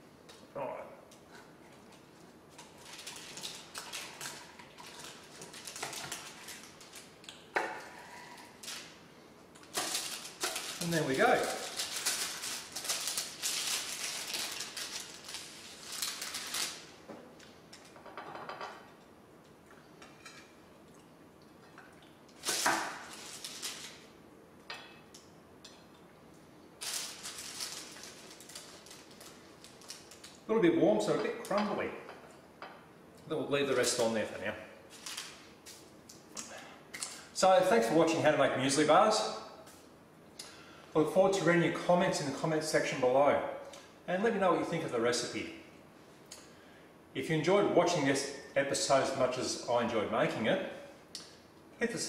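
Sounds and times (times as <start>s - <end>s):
baking paper crinkling: 2.6s - 7.2s, 9.6s - 17.0s, 22.4s - 24.2s, 26.8s - 30.5s, 34.9s - 35.9s.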